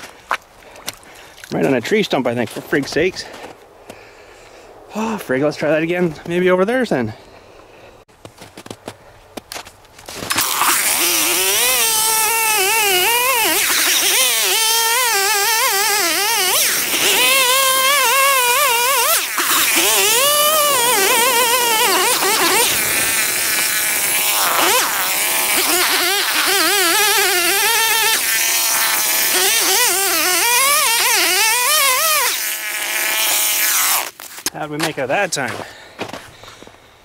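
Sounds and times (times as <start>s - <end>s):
chainsaw cutting ice: 10.1s - 34.5s.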